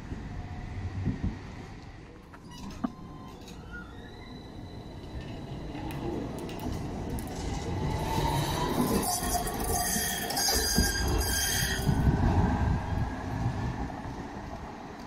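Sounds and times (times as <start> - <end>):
wheels rumbling on rails: 0.0 - 15.0
high wheel squeal: 8.0 - 12.1.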